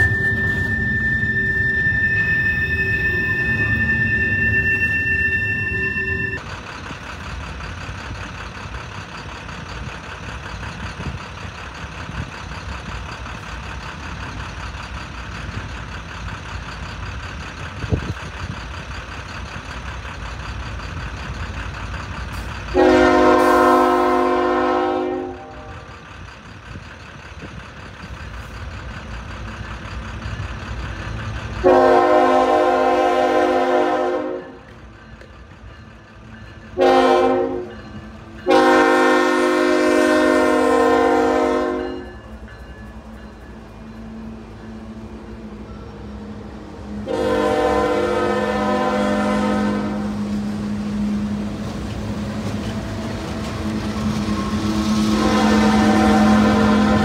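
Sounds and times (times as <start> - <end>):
low train rumble: 0.0 - 57.0
locomotive air horn blasts: 22.7 - 25.9, 31.6 - 34.6, 36.8 - 37.7, 38.4 - 42.1, 47.0 - 50.2, 54.7 - 57.0.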